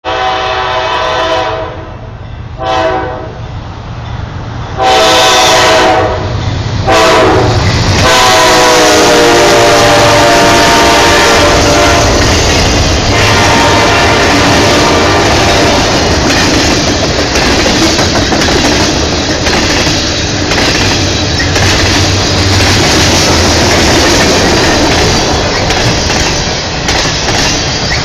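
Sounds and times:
locomotive air horn blasts: 0:00.0 - 0:02.0, 0:02.6 - 0:03.4, 0:04.8 - 0:12.3, 0:13.1 - 0:15.9
freight cars rumbling and clattering: 0:06.3 - 0:08.2, 0:11.4 - 0:28.0.

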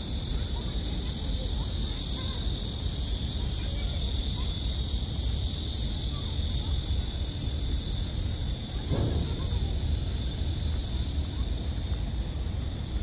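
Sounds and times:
insects droning: 0:00.0 - 0:13.0
constant low rumble: 0:06.0 - 0:13.0.

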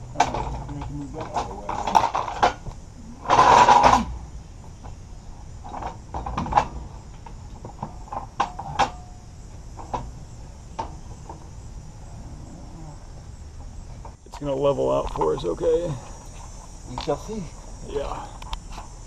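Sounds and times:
loud scraping rattle: 0:00.0 - 0:12.4.

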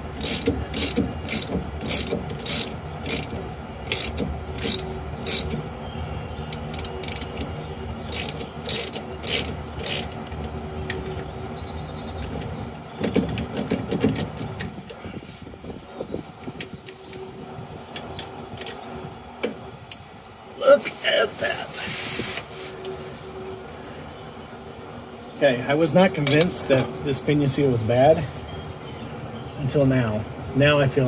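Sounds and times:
ratcheting wrench clicking: 0:00.1 - 0:05.6, 0:06.5 - 0:07.5, 0:08.1 - 0:10.3.

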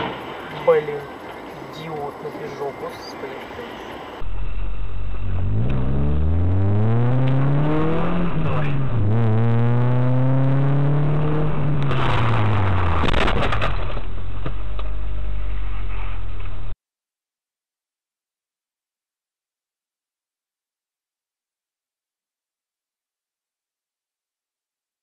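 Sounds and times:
car engine revving hard: 0:05.0 - 0:13.6
harsh noise with sharp cracks: 0:11.8 - 0:15.0.

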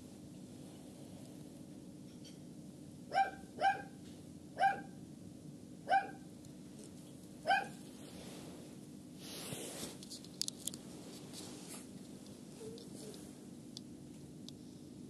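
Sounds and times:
brief rustle: 0:09.2 - 0:13.3.

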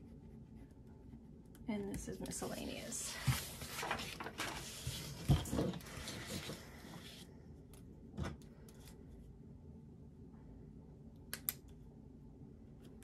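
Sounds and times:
paper rustling and sliding: 0:03.0 - 0:07.3.

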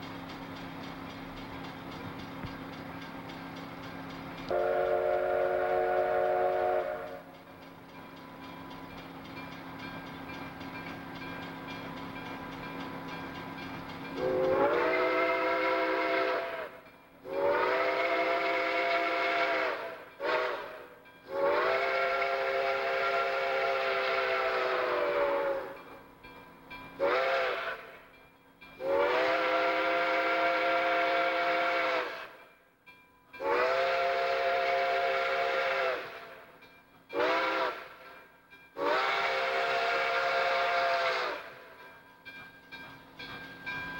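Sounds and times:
approaching train hum: 0:00.0 - 0:43.9
steam locomotive whistle chord: 0:04.4 - 0:07.6, 0:09.4 - 0:26.1, 0:26.8 - 0:28.2, 0:28.8 - 0:32.6, 0:33.3 - 0:42.0.

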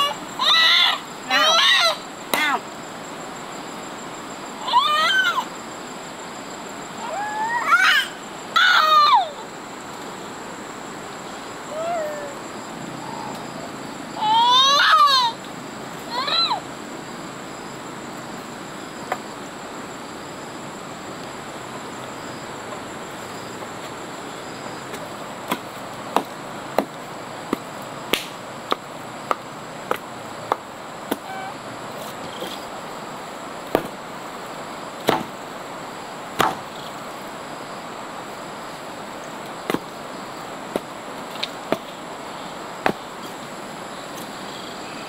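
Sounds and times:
background hiss: 0:00.0 - 0:45.0
blade chopping wooden poles: 0:25.5 - 0:31.2, 0:33.7 - 0:34.0, 0:35.0 - 0:35.4, 0:36.4 - 0:36.7.

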